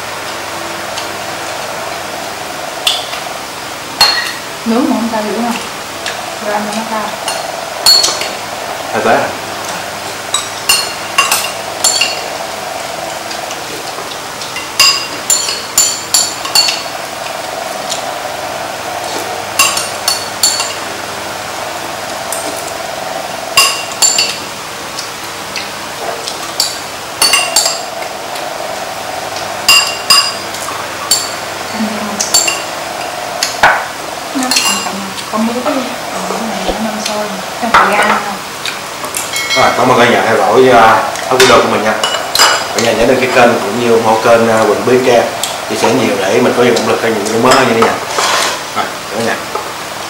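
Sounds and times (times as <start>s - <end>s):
steady background hiss: 0.0s - 50.0s
utensils clinking against bowls: 4.0s - 4.4s, 7.2s - 8.4s, 10.3s - 12.4s, 14.5s - 16.9s, 23.6s - 24.4s, 25.6s - 27.9s, 31.1s - 31.4s, 32.2s - 32.7s, 34.4s - 35.0s, 41.1s - 42.9s.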